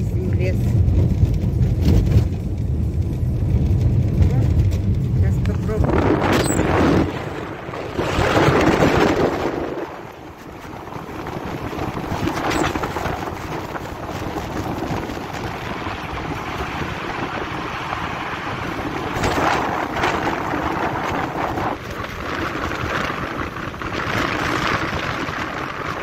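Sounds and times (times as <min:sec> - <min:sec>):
tyres rumbling on dirt road: 0:00.0 - 0:26.0
wind noise: 0:00.0 - 0:26.0.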